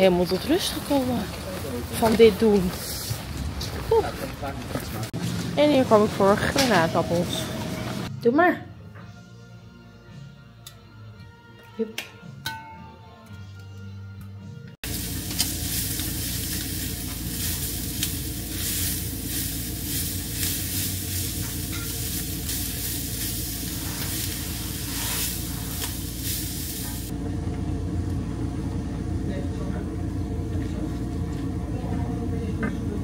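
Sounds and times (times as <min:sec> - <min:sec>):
food sizzling in a pan: 0:14.8 - 0:27.1
spatula scraping a pan: 0:23.3 - 0:25.8.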